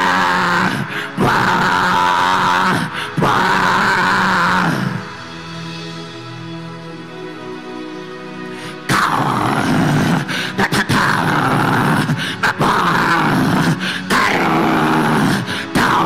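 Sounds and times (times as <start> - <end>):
soft background music: 0.0 - 16.0
man praying loudly: 10.5 - 16.0.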